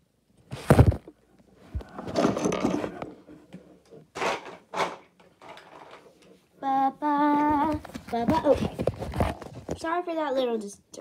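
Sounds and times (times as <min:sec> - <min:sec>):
scraping and rubbing: 0:00.5 - 0:06.4, 0:07.6 - 0:09.8.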